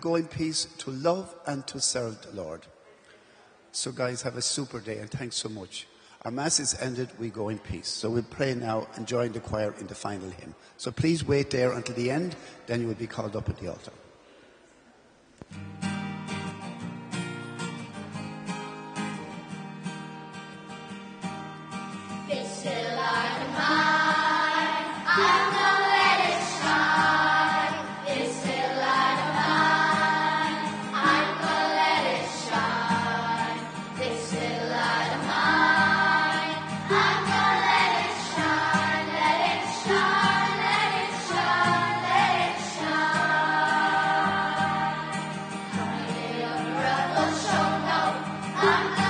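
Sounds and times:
acoustic guitar: 14.2 - 49.0
choir singing a hymn: 22.2 - 49.0.

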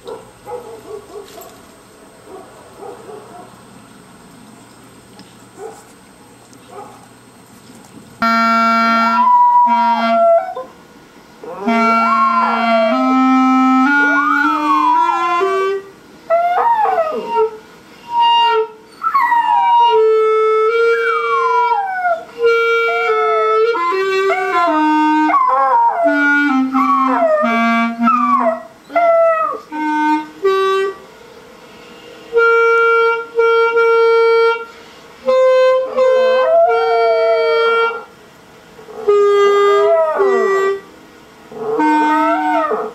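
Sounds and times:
instrument playing held notes: 8.2 - 10.6, 11.4 - 38.1, 39.1 - 40.9, 41.5 - 42.9
dog howling: 9.2 - 10.7, 11.4 - 13.2, 13.8 - 18.4, 19.0 - 20.1, 20.9 - 29.7, 35.8 - 38.1, 38.8 - 40.8, 41.5 - 42.9.

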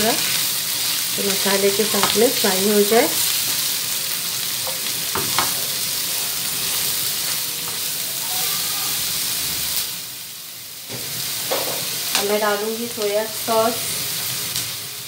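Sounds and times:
vegetables sizzling in hot oil: 0.0 - 15.0.

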